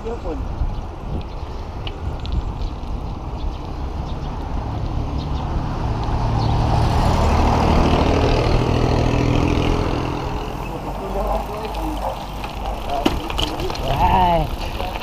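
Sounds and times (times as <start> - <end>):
vehicle engine passing: 3.2 - 12.8.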